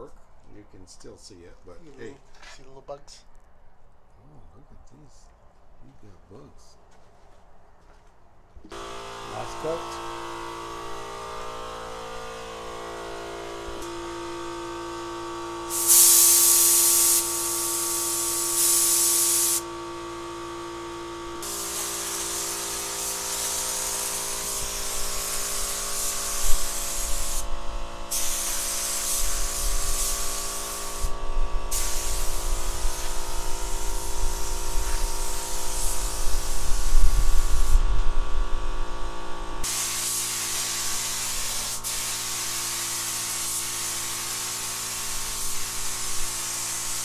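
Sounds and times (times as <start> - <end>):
spray gun hissing: 15.6 - 37.9, 39.6 - 47.0.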